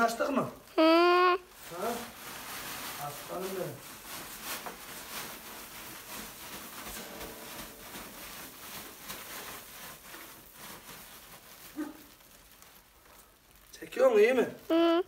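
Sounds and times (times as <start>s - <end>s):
rustling handling noise: 0.0s - 15.0s.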